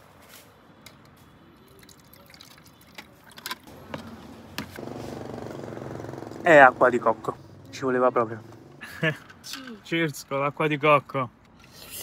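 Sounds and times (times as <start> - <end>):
liquid pouring into glass: 1.7 - 3.0.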